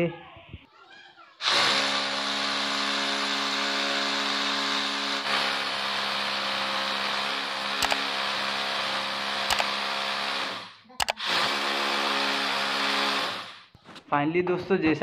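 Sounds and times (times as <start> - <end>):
rotary hammer drill boring concrete: 1.4 - 13.7
sharp click: 7.8 - 8.0, 9.5 - 9.7, 11.0 - 11.2.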